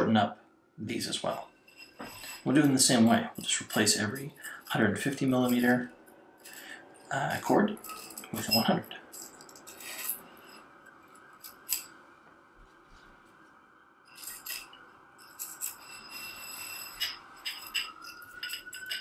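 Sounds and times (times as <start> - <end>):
small metal clicks and clinks: 7.8 - 10.6, 14.1 - 19.0.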